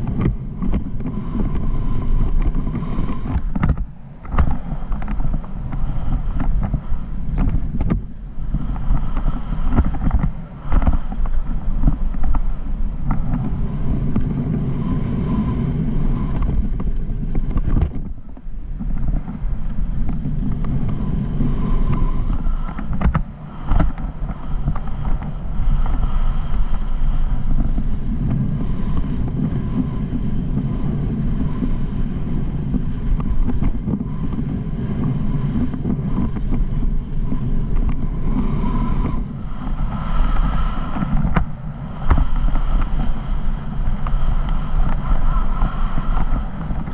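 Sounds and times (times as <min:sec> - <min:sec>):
wind rushing over microphone: 0:00.0 - 0:46.9.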